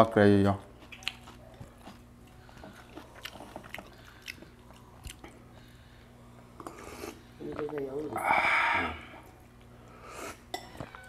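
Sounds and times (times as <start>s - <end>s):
faint steady hum: 0.0s - 11.0s
chewing: 0.8s - 5.8s.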